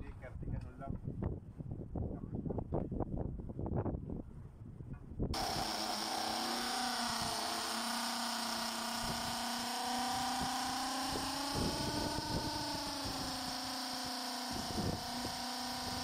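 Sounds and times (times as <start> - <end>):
electric drill running: 5.4 - 16.0.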